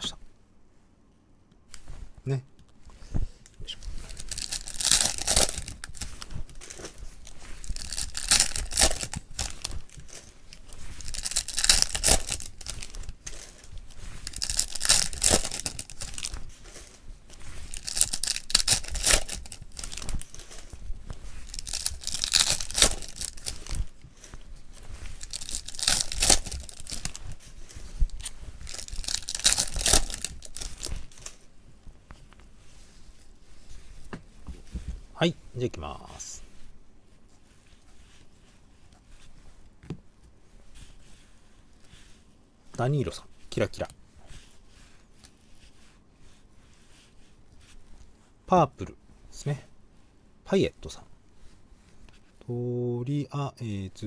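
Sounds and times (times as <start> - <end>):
wrappers crinkling: 3.6 - 48.3
card pack wrappers tearing: 3.9 - 17.0, 17.6 - 20.7, 21.4 - 24.0, 25.1 - 31.4.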